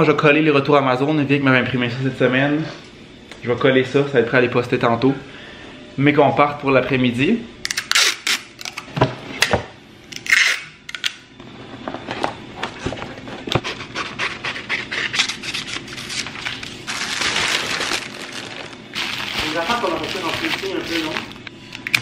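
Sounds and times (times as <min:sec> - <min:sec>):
paper sheets rustling: 0:15.0 - 0:21.4
plastic mailer crinkling: 0:15.2 - 0:21.4.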